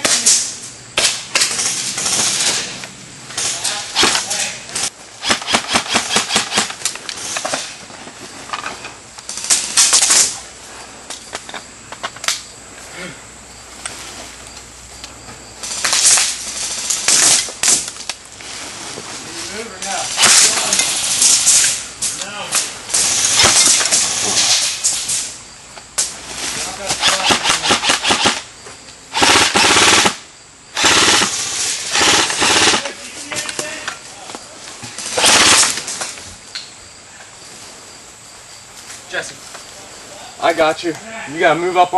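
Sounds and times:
hissing bursts: 0:03.4 - 0:07.8, 0:19.9 - 0:28.5, 0:29.1 - 0:33.0, 0:35.0 - 0:36.0
airsoft gun shots: 0:05.2 - 0:06.8, 0:20.2 - 0:21.7, 0:26.9 - 0:28.5, 0:29.1 - 0:30.2, 0:35.2 - 0:35.8.

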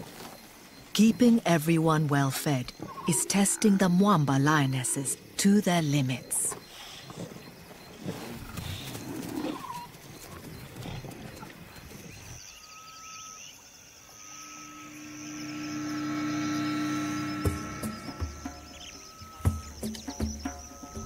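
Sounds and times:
lions growling: 0:06.5 - 0:12.4
music with long held notes: 0:15.2 - 0:21.0.

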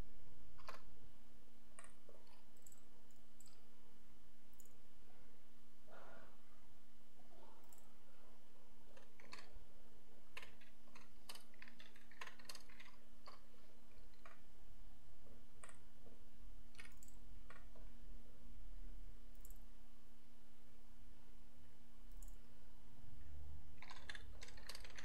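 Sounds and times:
low electrical hum: 0:00.0 - 0:25.0
computer mouse clicks: 0:00.6 - 0:00.9, 0:01.8 - 0:03.6, 0:04.5 - 0:04.8, 0:07.6 - 0:07.9, 0:09.0 - 0:09.5, 0:10.3 - 0:14.4, 0:15.6 - 0:15.8, 0:16.7 - 0:17.8, 0:19.3 - 0:19.6, 0:22.1 - 0:22.4, 0:23.8 - 0:25.0
keyboard keystrokes: 0:09.0 - 0:09.5, 0:10.4 - 0:14.4, 0:16.7 - 0:17.7, 0:23.8 - 0:25.0.

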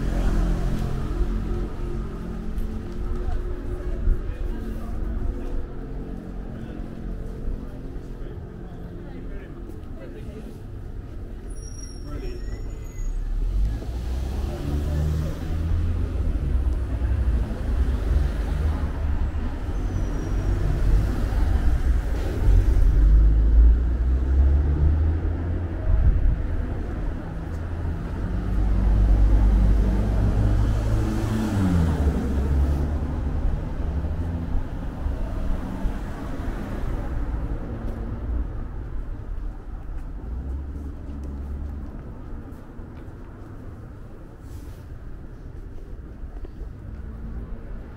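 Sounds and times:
cars driving past: 0:00.0 - 0:08.5, 0:11.4 - 0:47.9
engine and tyre rumble: 0:00.0 - 0:47.9.

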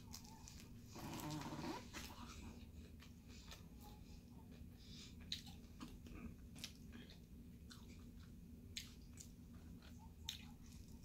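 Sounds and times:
person chewing wet mouth smacks: 0:05.2 - 0:11.0.

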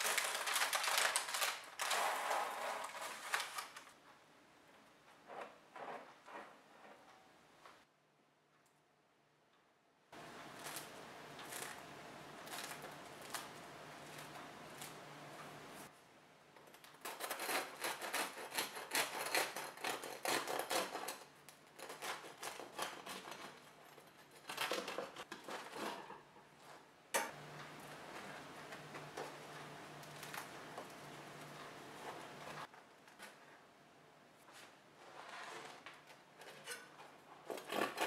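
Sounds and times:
bread crust crackling: 0:00.0 - 0:04.0, 0:10.2 - 0:15.9, 0:27.8 - 0:33.4
bread knife sawing through crust: 0:17.1 - 0:21.2.

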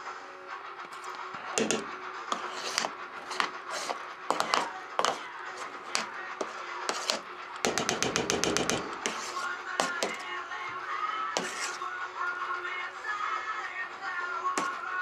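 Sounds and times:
metal spoon scraping steel bowl: 0:01.0 - 0:10.4, 0:11.4 - 0:11.9.

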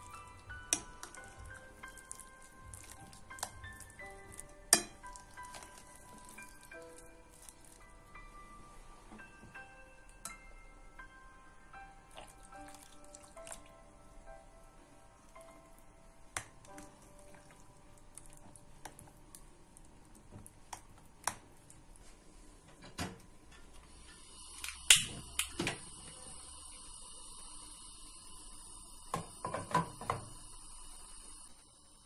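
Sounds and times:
gas burner hissing: 0:23.8 - 0:32.0.

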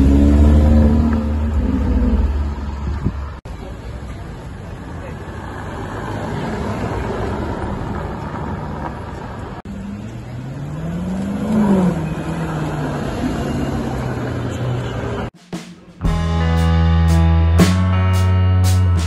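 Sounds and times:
car engine revving: 0:00.0 - 0:03.4, 0:05.9 - 0:15.3
cars driving past: 0:00.0 - 0:15.3.

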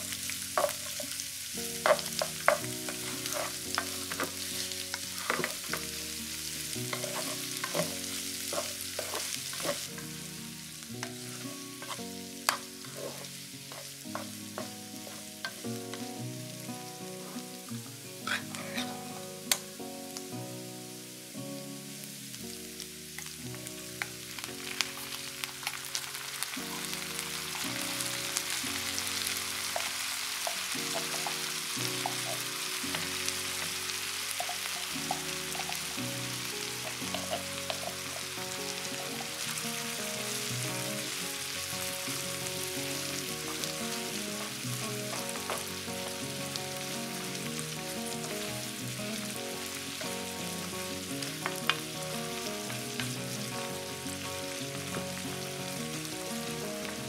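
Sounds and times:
food sizzling in oil: 0:00.0 - 0:57.0
wooden spoon scraping and tapping: 0:00.6 - 0:01.1, 0:01.8 - 0:05.9, 0:06.9 - 0:10.0, 0:11.8 - 0:15.6, 0:29.8 - 0:32.5, 0:34.4 - 0:35.8, 0:36.8 - 0:38.3.

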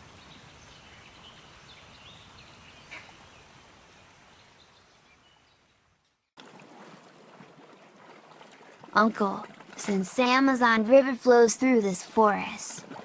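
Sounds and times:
rainforest ambience: 0:00.0 - 0:06.2
faint watery ambience: 0:00.0 - 0:13.0.

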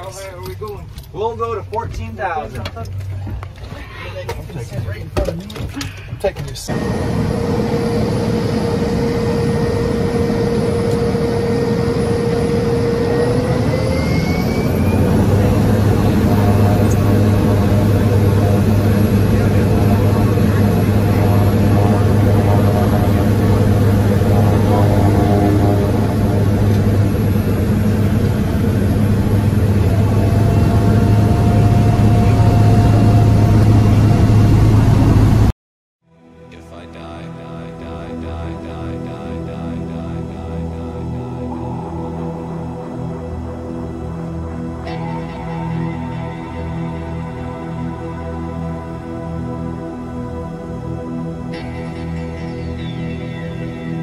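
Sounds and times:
propeller plane engine drone: 0:00.0 - 0:35.5, 0:36.1 - 0:54.0.

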